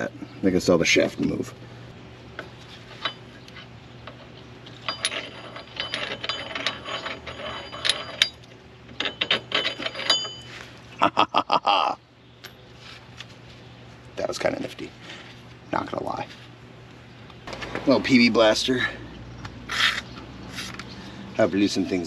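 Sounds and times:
metal tools clinking on wheel hub: 0:02.9 - 0:03.4, 0:04.0 - 0:10.6
rapid mechanical rattle: 0:04.1 - 0:10.4.

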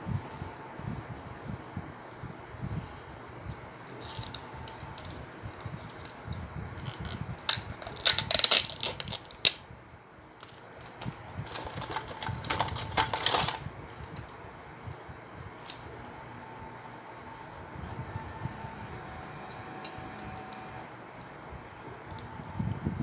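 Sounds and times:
plastic cup crackling and clicking: 0:06.8 - 0:09.6.

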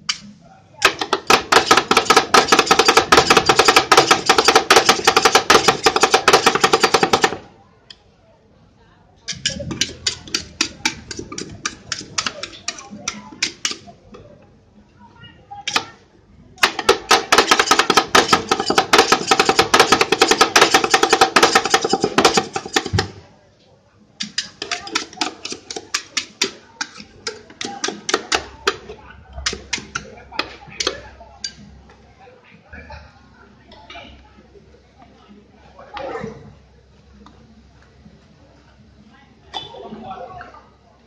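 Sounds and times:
metal spatulas clacking on plate: 0:09.3 - 0:13.9, 0:16.6 - 0:23.1, 0:24.2 - 0:28.8.

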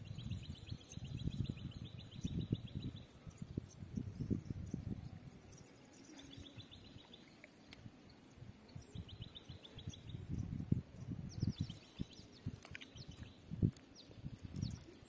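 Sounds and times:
wind buffeting microphone: 0:00.0 - 0:07.1, 0:07.8 - 0:15.0.

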